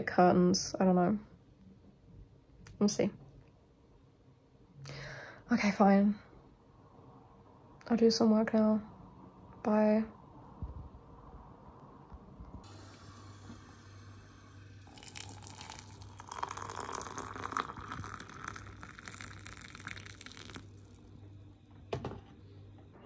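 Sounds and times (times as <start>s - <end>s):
low steady hum: 0.0s - 23.0s
water pouring into mug: 12.7s - 21.2s.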